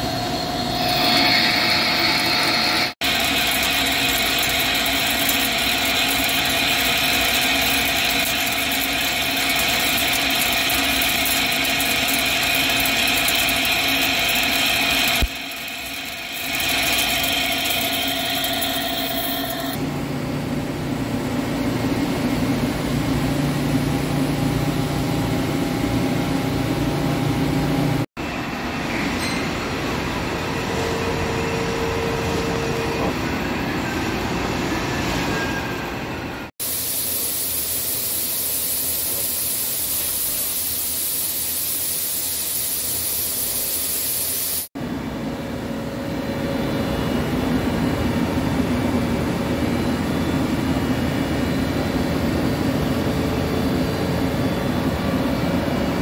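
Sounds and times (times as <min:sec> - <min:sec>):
lathe cutting with high tone: 0:00.0 - 0:19.8
machine hum: 0:00.0 - 0:28.0.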